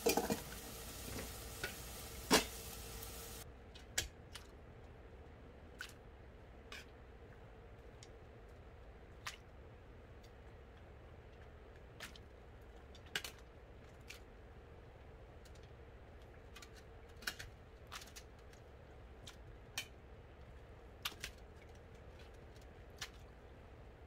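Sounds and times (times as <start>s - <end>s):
metal spatula tapping pot: 0.0s - 2.6s.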